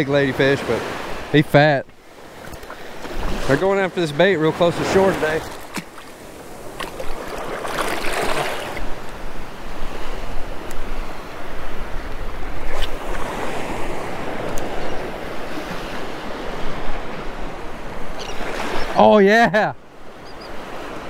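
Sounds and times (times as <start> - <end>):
small surf waves breaking: 0.0 - 21.0
water splashing: 2.2 - 9.0.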